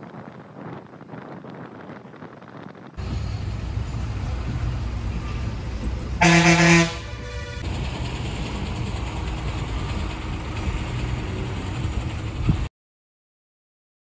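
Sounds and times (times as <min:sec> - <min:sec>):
vehicle engine rumbling: 0:00.0 - 0:12.7
vehicle horn blast: 0:06.2 - 0:07.7.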